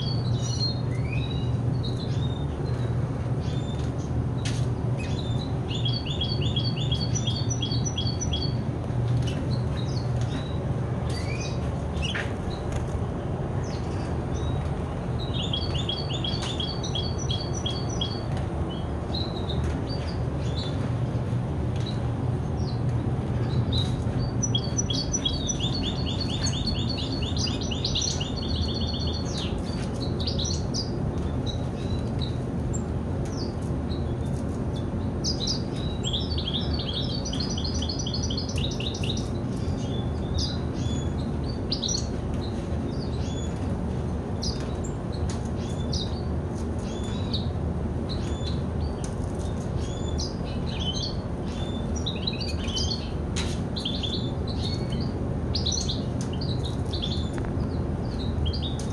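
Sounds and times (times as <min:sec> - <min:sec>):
bird chirps and twitters: 0:00.0 - 0:58.9
steady low hum: 0:00.0 - 0:58.9.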